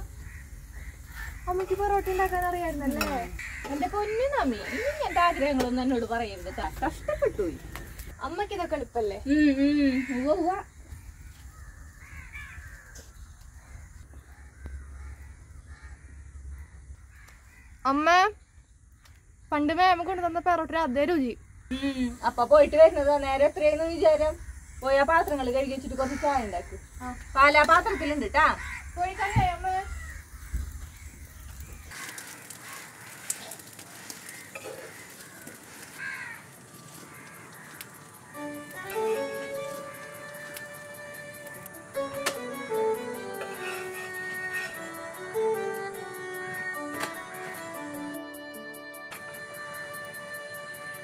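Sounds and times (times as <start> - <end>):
flatbread sizzling on griddle: 0.0 - 8.4, 27.0 - 42.0, 42.9 - 45.6
crows cawing: 0.1 - 8.1, 9.6 - 17.8, 24.2 - 42.1, 42.8 - 46.2.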